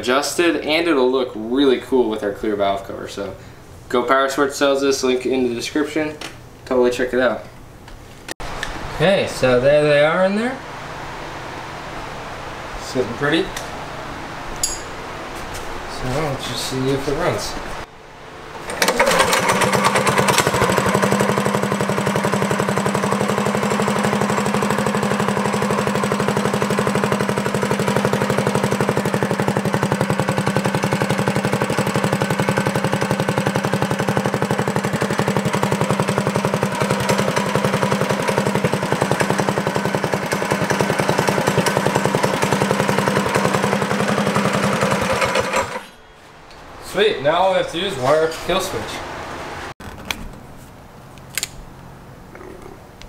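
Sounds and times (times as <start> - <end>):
small engine idling: 18.6 - 46.0.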